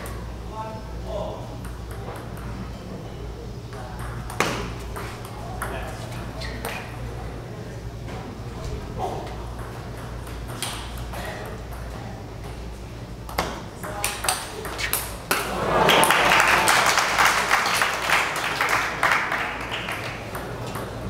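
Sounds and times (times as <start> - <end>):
crowd applauding: 15.4 - 20.3.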